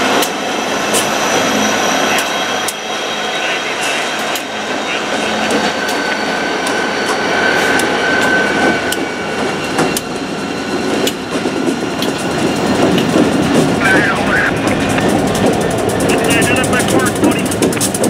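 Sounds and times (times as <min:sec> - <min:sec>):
steady high tone: 0:00.0 - 0:12.8, 0:13.6 - 0:17.6
diesel locomotive engines: 0:00.0 - 0:18.0
wheels clicking over rail joints: 0:14.7 - 0:18.0.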